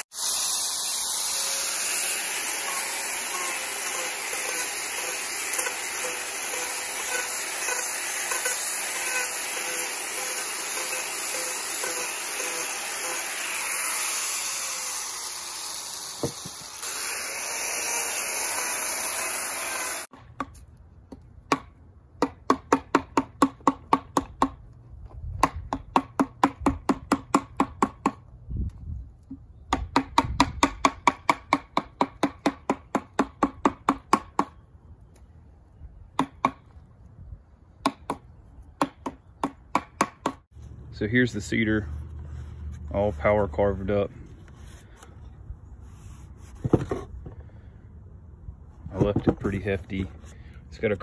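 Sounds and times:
angle grinder grinding wood: 0:00.0 - 0:20.1
mallet striking chisel into wood: 0:20.4 - 0:24.6, 0:29.7 - 0:34.6.

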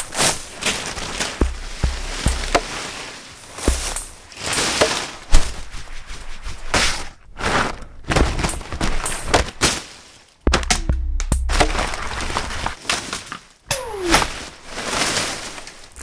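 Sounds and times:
leaves rustling and crumpling: 0:00.0 - 0:10.5, 0:11.5 - 0:16.0.

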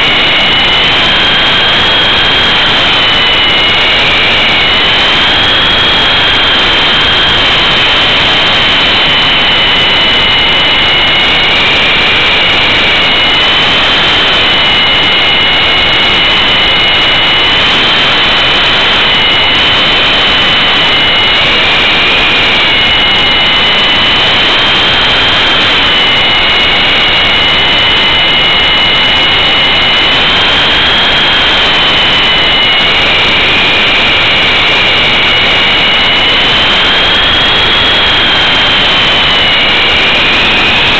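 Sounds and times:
high motor whines: 0:00.0 - 0:40.9.

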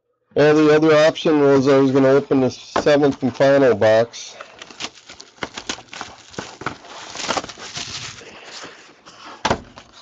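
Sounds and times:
cardboard box rustling: 0:04.6 - 0:10.0.

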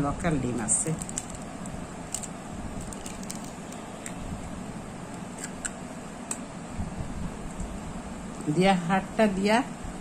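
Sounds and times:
background hum: 0:00.0 - 0:10.0
egg cracking clicks: 0:01.0 - 0:04.2.

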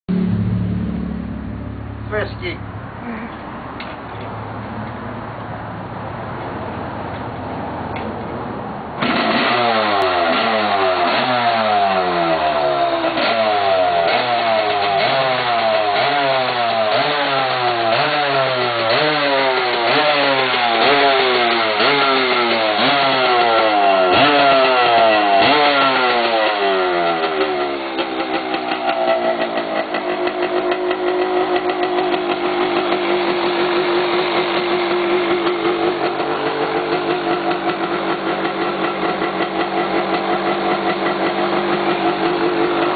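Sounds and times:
motorcycle engine kick start: 0:09.0 - 0:42.9
engine fluttering idle: 0:26.2 - 0:42.9.

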